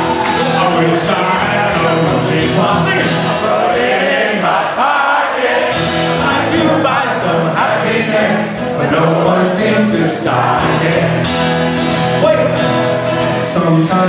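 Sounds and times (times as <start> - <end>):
acoustic guitar strumming: 0.0 - 14.0
man singing into a microphone: 0.5 - 3.8, 6.2 - 11.2, 13.4 - 14.0.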